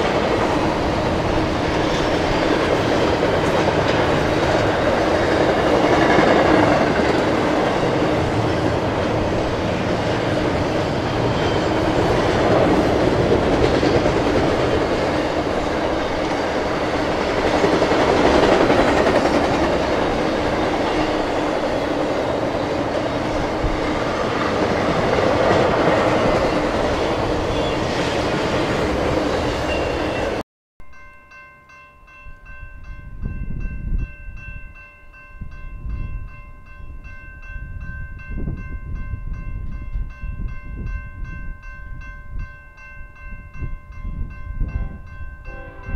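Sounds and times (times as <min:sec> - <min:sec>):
train wheels running on track: 0:00.0 - 0:30.4.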